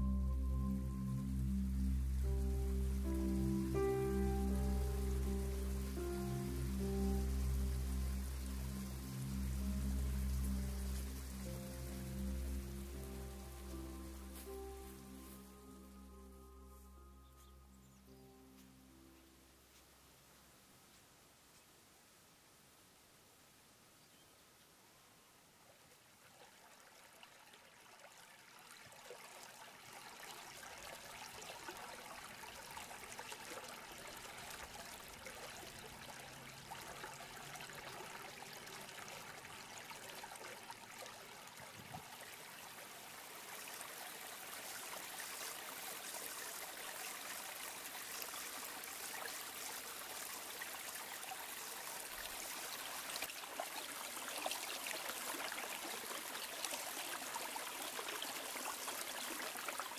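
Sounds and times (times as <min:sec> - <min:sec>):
brook trickling over stones: 0:00.0 - 0:21.8, 0:25.7 - 0:59.9.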